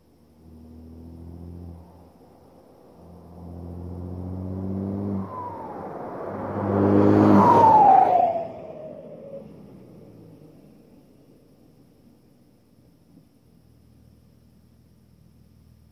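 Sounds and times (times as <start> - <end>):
diesel car accelerating: 0.0 - 15.9
high whistle falling in pitch: 5.2 - 9.5.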